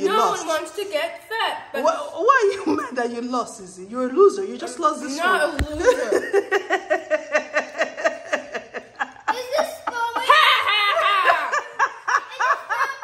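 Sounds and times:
girls laughing: 5.7s - 13.0s.

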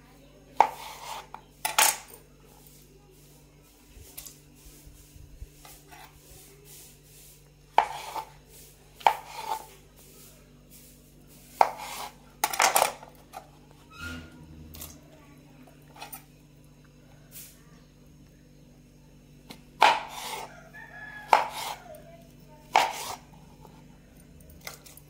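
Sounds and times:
knife striking cutting board: 7.8s - 8.3s, 9.0s - 9.7s, 11.5s - 12.9s, 19.8s - 20.5s, 21.2s - 21.8s, 22.7s - 23.2s.

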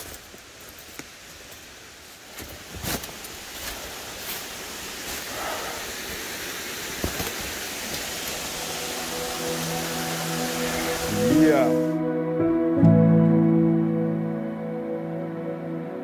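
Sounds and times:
footsteps on dry leaves: 0.0s - 5.7s
waterfall and stream rushing: 0.0s - 15.8s.

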